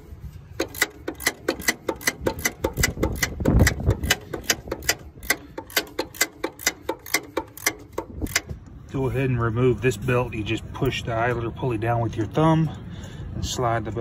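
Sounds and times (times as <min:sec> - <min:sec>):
ratchet wrench clicking: 0:00.5 - 0:08.8.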